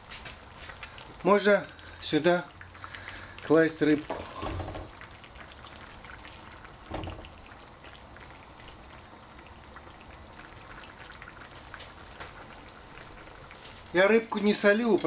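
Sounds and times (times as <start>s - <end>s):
sauce simmering and bubbling: 0.0s - 15.0s
soft knock: 6.9s - 7.3s.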